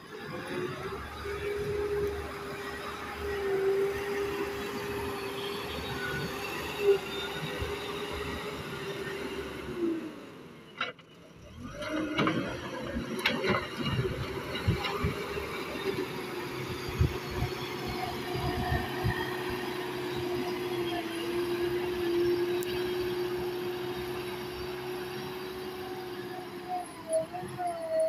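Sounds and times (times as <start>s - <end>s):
diesel engine running: 11.3s - 27.6s.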